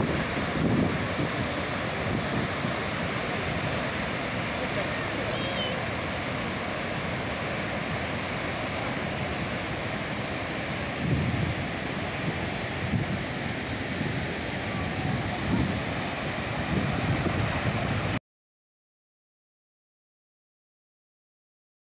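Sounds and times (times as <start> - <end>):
wind buffeting microphone: 0.0 - 3.8, 10.8 - 18.2
water rushing and crashing: 0.0 - 18.2.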